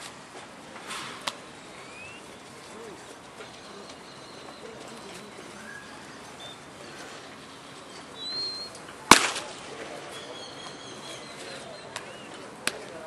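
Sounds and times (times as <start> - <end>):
bird chirps: 3.6 - 8.8, 10.1 - 12.4
sharp crack: 9.0 - 9.9.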